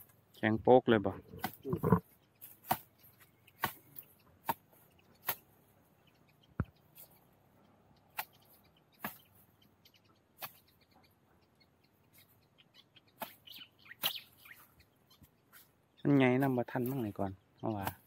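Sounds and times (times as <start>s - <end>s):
hand tool chopping bamboo: 3.6s - 3.8s.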